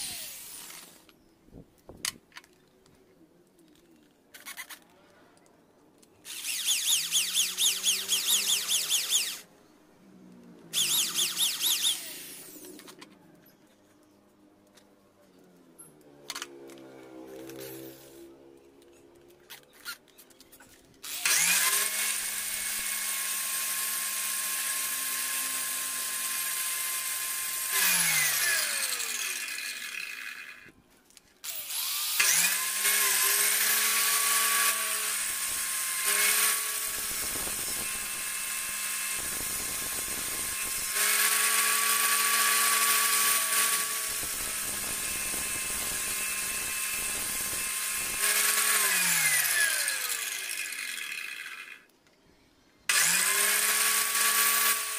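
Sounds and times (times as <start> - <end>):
electric power tool motor running: 0.0 - 1.0, 6.3 - 9.5, 10.8 - 12.7, 21.0 - 30.7, 31.4 - 51.8, 52.9 - 54.9.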